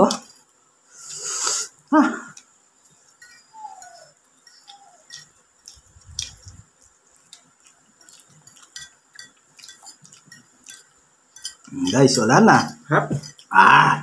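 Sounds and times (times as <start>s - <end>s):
forks tapping and scraping plates: 2.8s - 13.5s.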